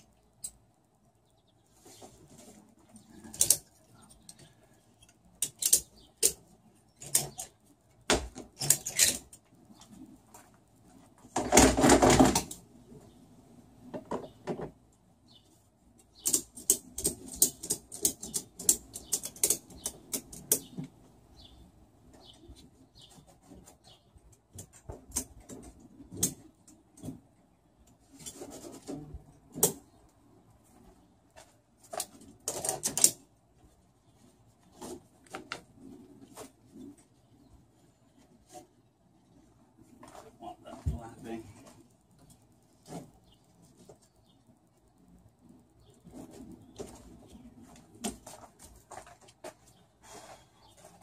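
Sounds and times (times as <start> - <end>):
strap webbing rasping: 1.8 - 10.8, 31.4 - 37.3.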